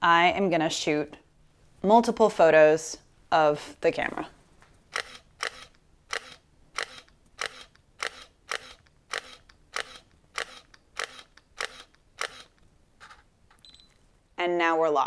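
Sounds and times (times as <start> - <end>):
camera shutter clicks: 4.9 - 12.5.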